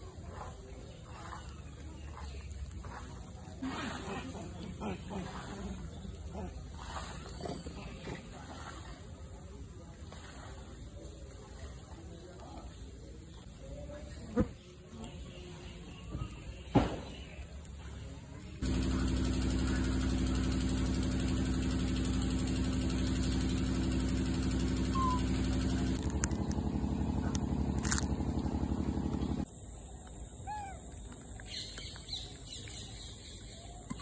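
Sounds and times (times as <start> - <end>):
small birds chirping: 0.0 - 3.6, 13.2 - 20.3, 23.2 - 34.0
steady motor hum: 0.0 - 11.8, 17.4 - 34.0.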